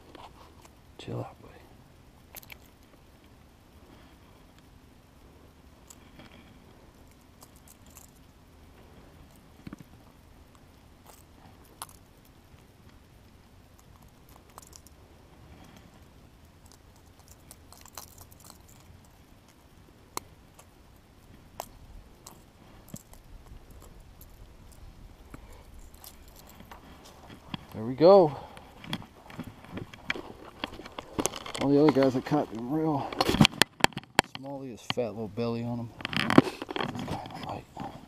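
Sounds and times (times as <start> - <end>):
soft handling noise: 0.0 - 1.6, 13.7 - 38.0.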